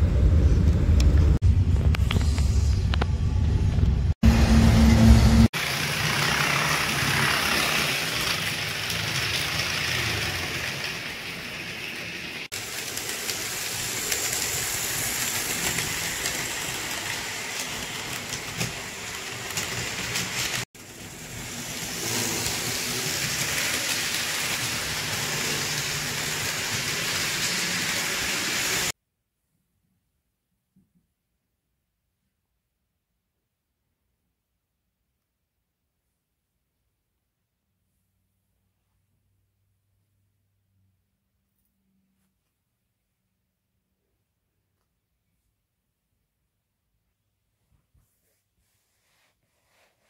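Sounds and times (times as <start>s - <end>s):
deep rumble: 0.0s - 5.5s
model train wheels rattling on track: 5.6s - 28.9s.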